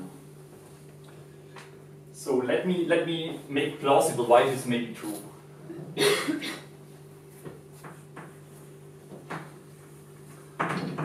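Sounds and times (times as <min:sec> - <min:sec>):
steady low hum: 0:00.0 - 0:11.0
person coughing: 0:05.9 - 0:06.7.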